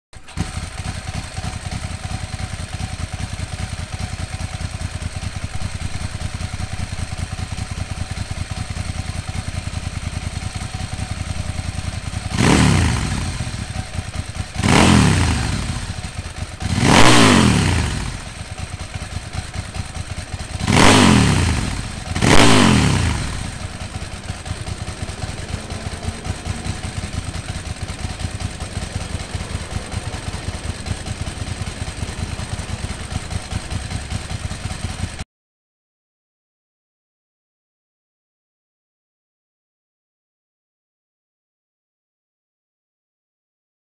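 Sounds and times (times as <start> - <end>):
motorcycle engine idling and revving: 0.2 - 35.3.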